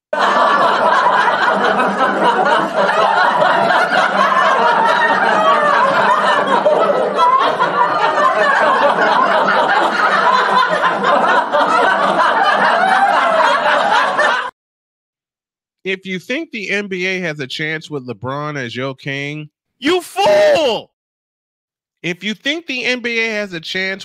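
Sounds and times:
group of people laughing: 0.1 - 14.6, 19.8 - 20.8.

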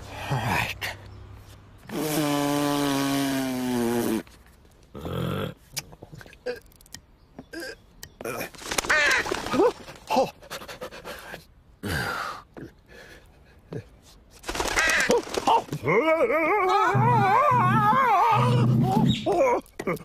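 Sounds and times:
wavering wail: 15.9 - 19.4.

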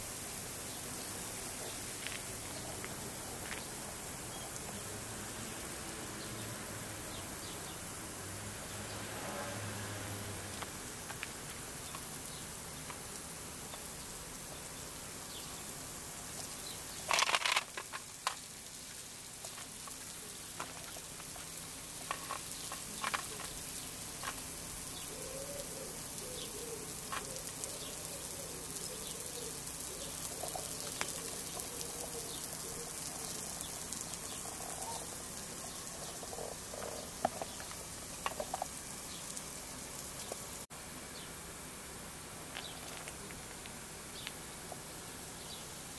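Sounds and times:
outdoor hiss: 0.0 - 45.9
puppy playing on gravel: 1.4 - 5.0, 16.4 - 24.7, 33.2 - 40.5, 42.4 - 45.5.

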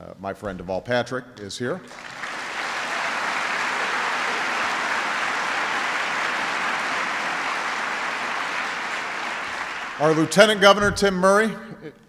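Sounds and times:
large audience applauding: 1.9 - 10.6.

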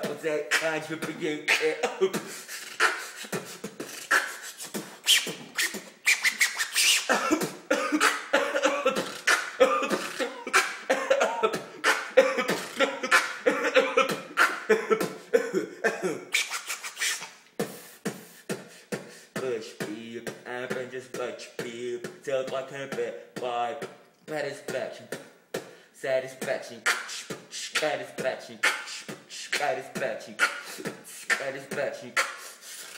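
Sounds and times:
beatboxing mouth beats: 0.0 - 32.9.

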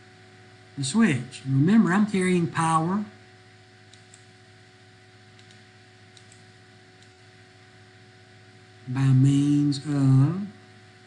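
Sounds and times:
low electrical hum: 0.0 - 11.0
faint computer mouse clicks: 3.9 - 4.3, 5.4 - 6.4.

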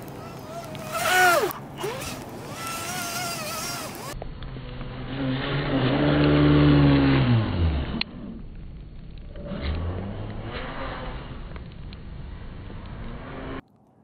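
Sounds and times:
electric motor whining: 0.0 - 8.0.

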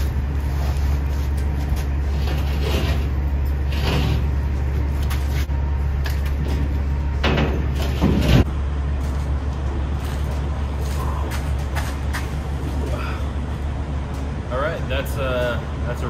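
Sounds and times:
steady low hum: 0.0 - 16.0
metal plate scraping metal: 2.0 - 4.5, 7.2 - 8.5.

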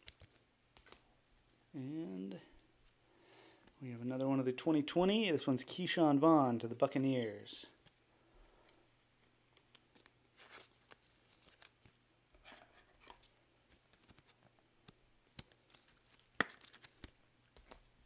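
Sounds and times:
trading cards rustling and clicking: 0.0 - 1.1, 8.6 - 12.0, 12.9 - 18.0.

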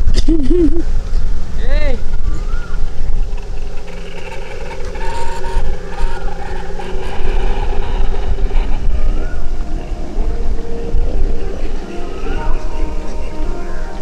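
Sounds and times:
drone motors humming: 0.0 - 14.0.

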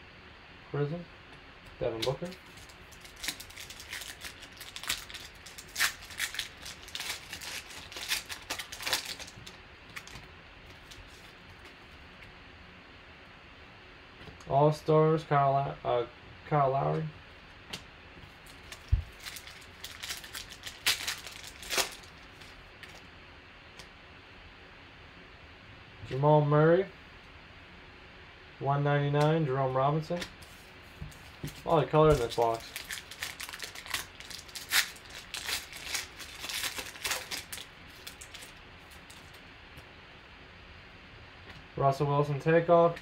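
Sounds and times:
foil wrapper crinkling and tearing: 2.0 - 11.7, 18.4 - 23.1, 31.2 - 39.4.

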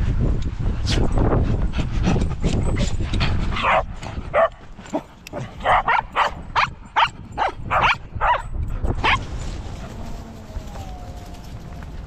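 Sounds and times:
small dogs yipping and barking: 3.6 - 11.3.

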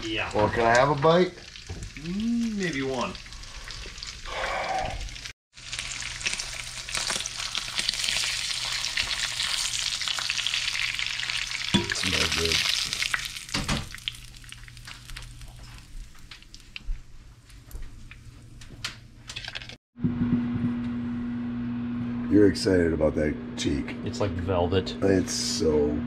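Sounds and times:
fish sizzling in a skillet: 5.6 - 16.2.

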